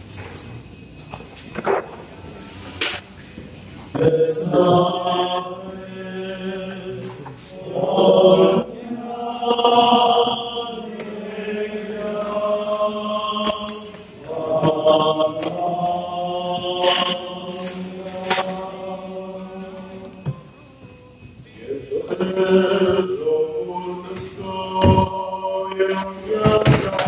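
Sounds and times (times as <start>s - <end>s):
voices chanting long notes: 3.9s - 27.0s.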